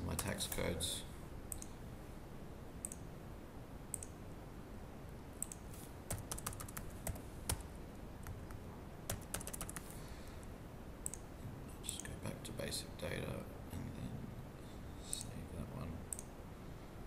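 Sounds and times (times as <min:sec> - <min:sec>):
mouse clicks: 0:02.8 - 0:03.0, 0:03.9 - 0:04.2, 0:05.4 - 0:05.7, 0:11.0 - 0:11.2
computer keyboard keystrokes: 0:03.9 - 0:04.2, 0:05.4 - 0:09.9, 0:11.0 - 0:11.2.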